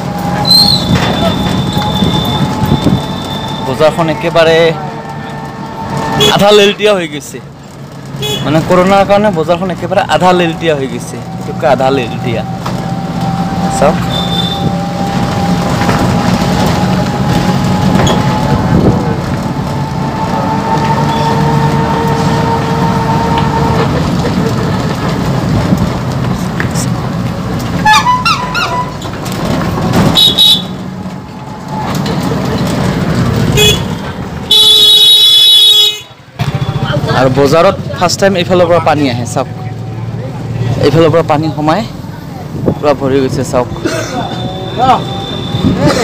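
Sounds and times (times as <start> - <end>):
road and wind noise: 0.0 - 46.0
street and engine noise: 0.0 - 46.0
vehicle horns honking: 0.3 - 4.0, 4.8 - 6.8, 8.2 - 8.7, 14.0 - 15.0, 20.2 - 24.1, 27.8 - 29.0, 30.0 - 30.9, 33.5 - 37.2, 43.8 - 46.0
motorcycle engine running: 36.2 - 38.0.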